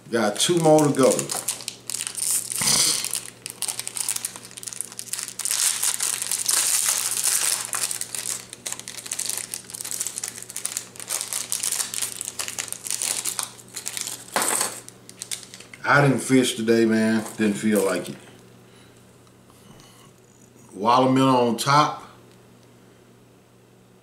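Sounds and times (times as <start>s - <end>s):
packaging crinkling and rustling: 0.5s - 15.8s, 17.0s - 18.2s.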